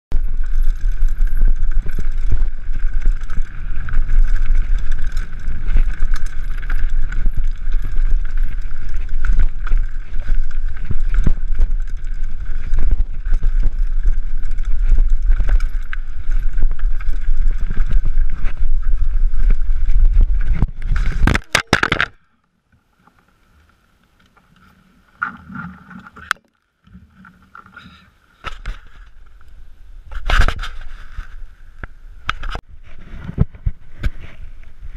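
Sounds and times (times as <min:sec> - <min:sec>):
mountain bike rattling over stone: 0:00.1 - 0:22.2
faint scrapes and knocks: 0:30.1 - 0:34.9.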